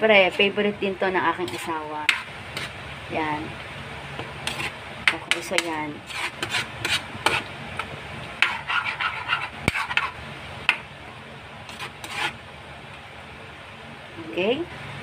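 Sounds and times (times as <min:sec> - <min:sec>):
low steady hum: 0:00.0 - 0:15.0
metal ladle scraping a pan: 0:01.4 - 0:02.8, 0:04.4 - 0:07.5, 0:08.4 - 0:10.2, 0:11.7 - 0:12.4.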